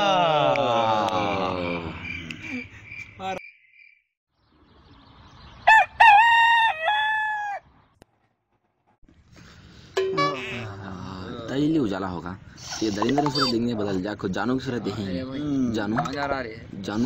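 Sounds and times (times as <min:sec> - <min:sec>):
rooster crowing: 0:05.7 - 0:07.6
song playing: 0:10.0 - 0:10.5.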